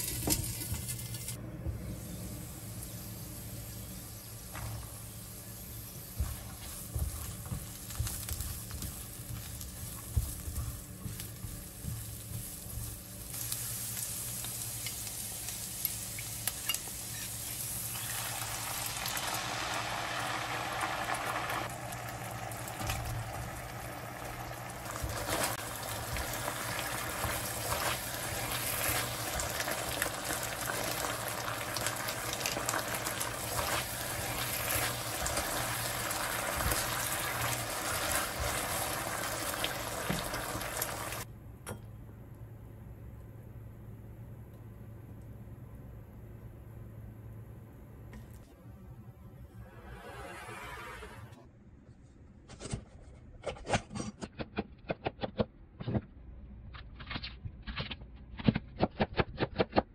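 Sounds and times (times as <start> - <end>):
food sizzling in a wok: 2.0 - 41.3
sauce bubbling: 17.9 - 41.3.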